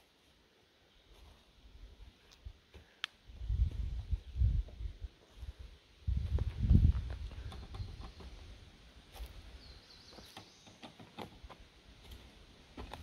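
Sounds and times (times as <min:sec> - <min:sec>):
bird chirp: 0:07.3 - 0:11.2.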